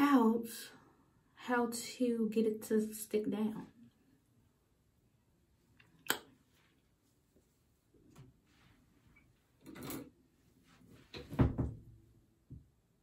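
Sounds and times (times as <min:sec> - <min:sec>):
heavy thump: 0:11.2 - 0:11.9.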